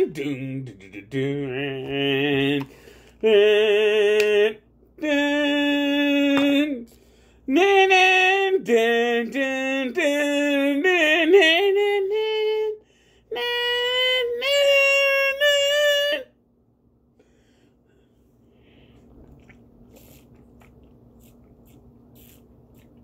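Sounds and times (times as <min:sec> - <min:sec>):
man singing in high voice: 0:00.0 - 0:16.4.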